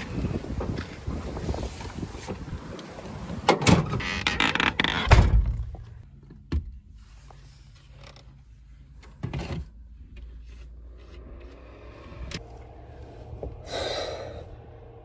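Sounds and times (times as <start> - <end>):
low steady hum: 5.7 - 15.0.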